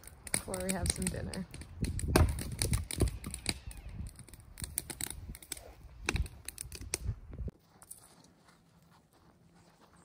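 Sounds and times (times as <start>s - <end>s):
campfire crackling and popping: 0.0s - 7.1s.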